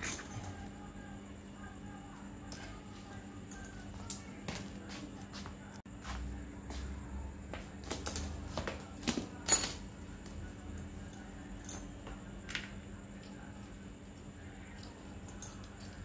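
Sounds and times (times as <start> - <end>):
metal parts and tools clinking: 0.0 - 0.7, 9.0 - 10.8, 11.6 - 16.0.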